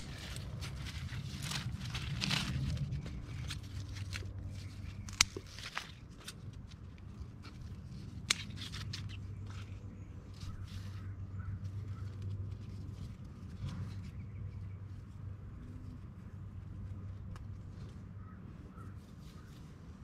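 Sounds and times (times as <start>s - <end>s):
steady low hum: 0.0s - 20.0s
faint bird calls: 9.3s - 12.4s, 17.9s - 19.8s.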